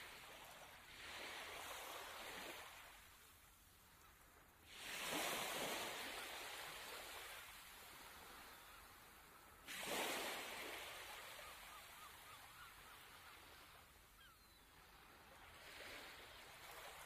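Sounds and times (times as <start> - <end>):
small waves washing on shore: 0.0 - 17.0.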